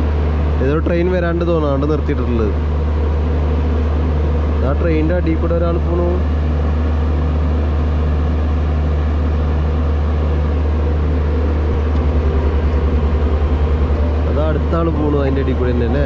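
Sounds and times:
low mechanical hum: 0.0s - 16.0s
fast low throbbing: 11.6s - 16.0s.

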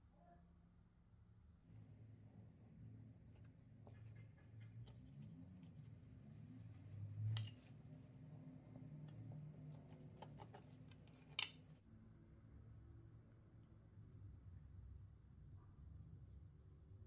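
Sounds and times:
knife crunching through pastry: 8.7s - 11.8s.

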